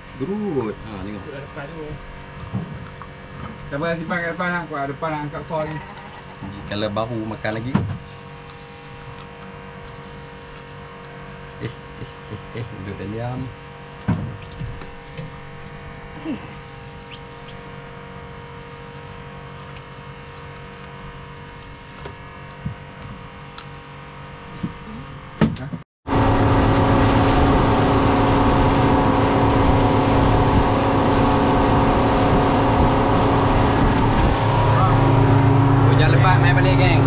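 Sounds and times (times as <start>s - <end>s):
boat engine humming: 0.0s - 25.4s, 26.1s - 37.0s
wind and water rushing: 26.1s - 37.0s.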